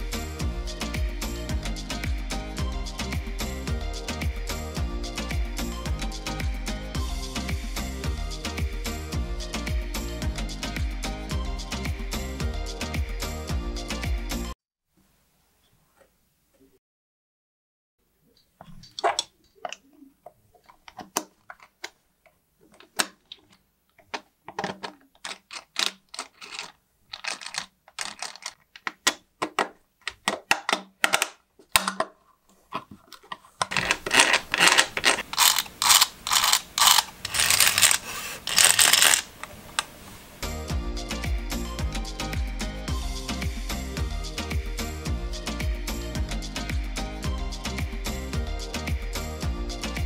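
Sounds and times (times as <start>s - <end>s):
plastic parts clicking and knocking: 18.6s - 39.9s
plastic parts clattering: 22.6s - 39.9s.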